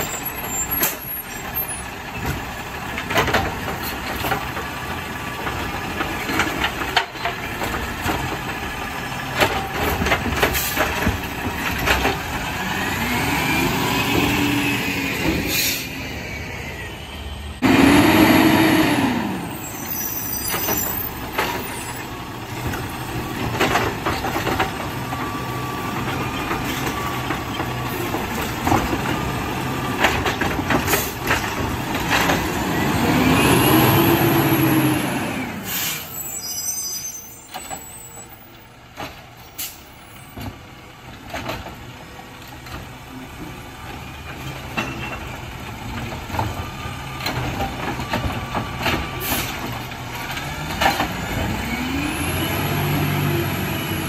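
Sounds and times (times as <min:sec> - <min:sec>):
hydraulic arm dumping cart: 0:00.0 - 0:54.0
garbage truck engine revving: 0:02.7 - 0:36.0, 0:45.4 - 0:54.0
air brakes hissing: 0:15.4 - 0:16.9, 0:35.6 - 0:38.3, 0:39.5 - 0:40.2, 0:49.1 - 0:49.7.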